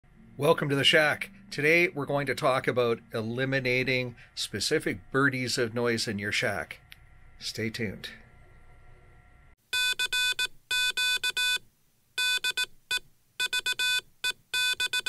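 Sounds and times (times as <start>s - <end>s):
faint hum: 0.1s - 9.6s
morse code electronic beeps: 9.7s - 11.6s, 12.2s - 15.0s.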